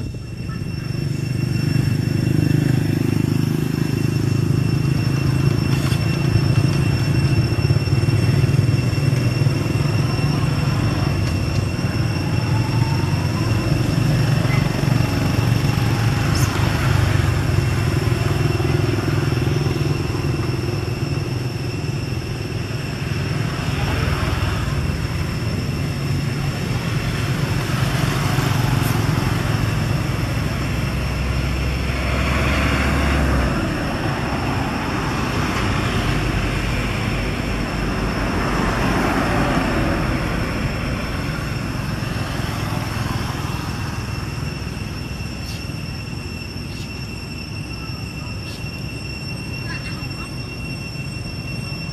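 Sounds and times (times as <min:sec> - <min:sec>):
vehicles passing: 0:00.0 - 0:51.9
faint high tone: 0:46.7 - 0:51.9.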